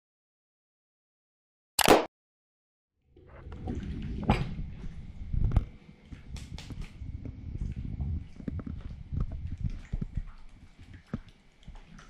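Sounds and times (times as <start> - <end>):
click sound effect: 1.8 - 2.1.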